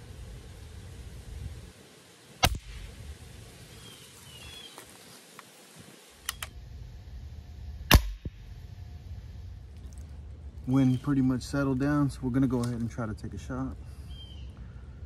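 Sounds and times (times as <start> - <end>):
wind rumbling on microphone: 0.0 - 1.8
air rifle firing crack: 2.4 - 2.9, 7.9 - 8.4.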